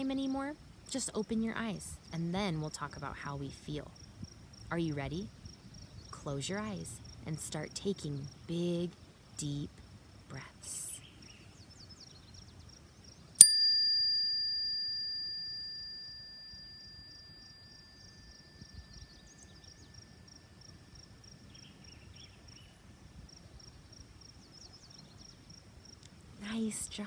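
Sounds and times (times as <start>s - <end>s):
insect chirping: 0.2s - 10.3s, 11.0s - 27.0s
chime ringing: 13.4s - 21.2s.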